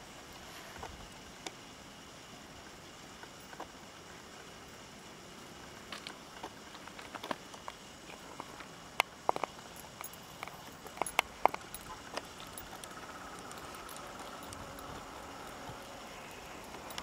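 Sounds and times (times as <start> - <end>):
faint whine: 0.0 - 17.0
train running noise: 10.0 - 17.0.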